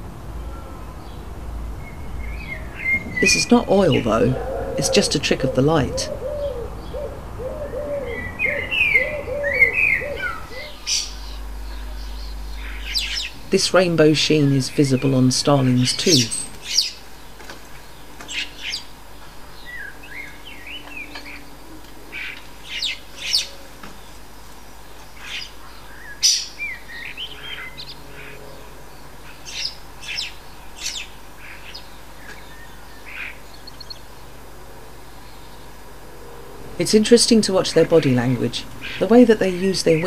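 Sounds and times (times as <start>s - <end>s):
starlings chattering: 0.0s - 40.0s.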